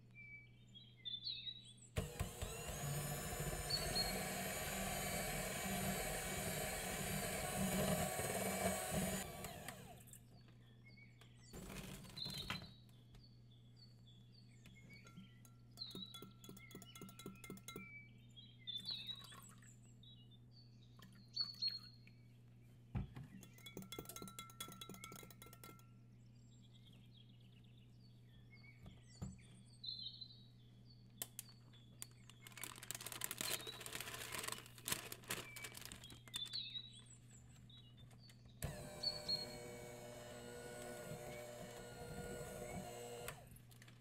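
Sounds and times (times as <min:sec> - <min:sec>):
birdsong: 0:00.0 - 0:44.0
electric hand mixer running: 0:02.0 - 0:10.1, 0:38.6 - 0:43.6
spoon clinking against glass: 0:15.1 - 0:18.0, 0:23.4 - 0:25.8.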